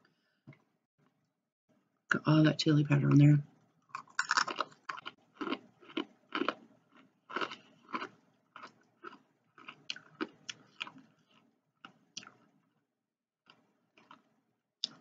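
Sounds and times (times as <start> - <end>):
crunching and chewing chips: 3.9 - 12.6, 13.4 - 15.0.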